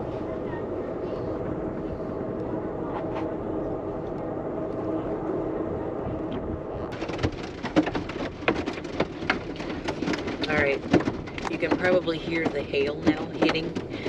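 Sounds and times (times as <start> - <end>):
moving train rumble and hum: 0.0 - 14.0
hail hitting train car: 6.9 - 14.0.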